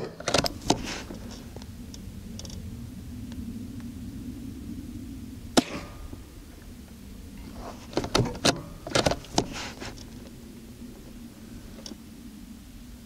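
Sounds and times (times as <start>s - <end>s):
steady low hum: 0.0s - 13.0s
rifle shot: 5.6s - 6.0s.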